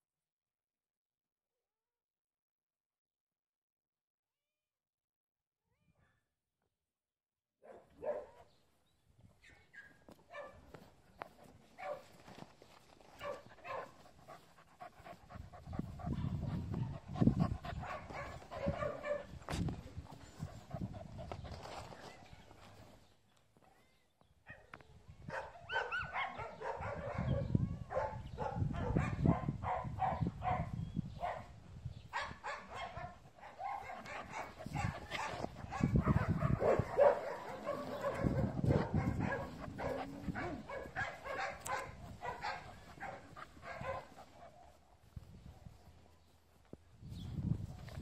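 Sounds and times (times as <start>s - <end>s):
microphone handling rumble: 15.3s - 21.6s, 34.6s - 41.0s
dog barking and whining: 17.7s - 19.4s, 25.3s - 31.4s, 32.2s - 44.7s.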